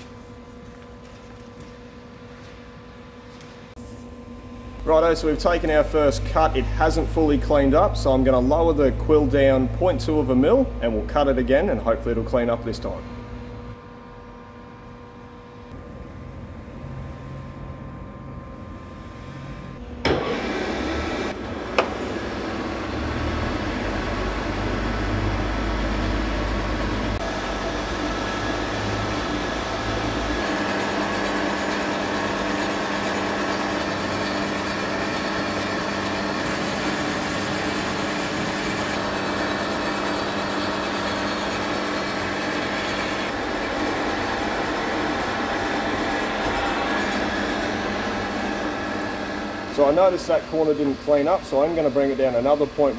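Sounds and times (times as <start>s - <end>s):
milling cutter cutting metal: 20.0s - 52.9s.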